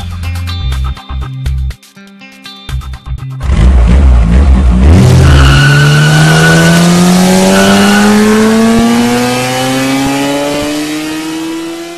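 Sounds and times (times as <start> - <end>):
racing car engine accelerating: 3.4 - 11.9.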